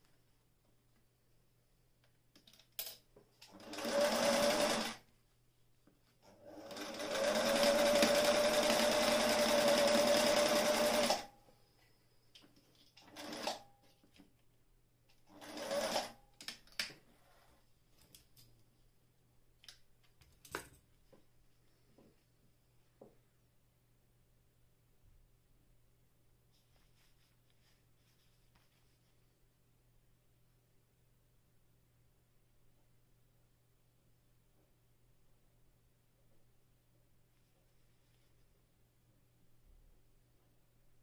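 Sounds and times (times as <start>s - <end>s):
sewing machine stitching: 3.4s - 5.0s, 6.3s - 11.3s, 13.0s - 13.7s, 15.3s - 16.2s.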